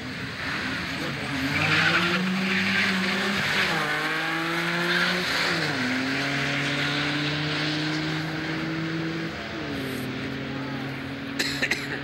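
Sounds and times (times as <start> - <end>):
drag car engine at full throttle: 0.0 - 12.0.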